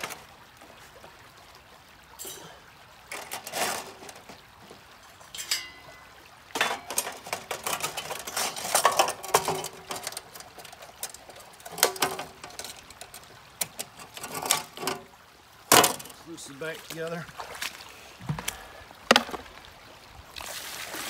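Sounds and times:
metal tray clattering on metal: 0:03.1 - 0:04.3, 0:06.6 - 0:12.9.

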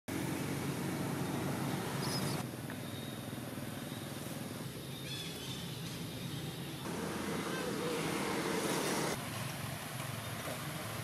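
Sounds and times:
low outdoor rumble: 0:00.1 - 0:11.0
faint high chirp: 0:02.0 - 0:06.8.

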